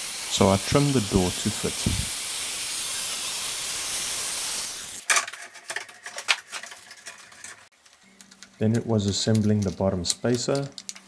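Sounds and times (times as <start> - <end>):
circular saw cutting wood: 0.0 - 5.0.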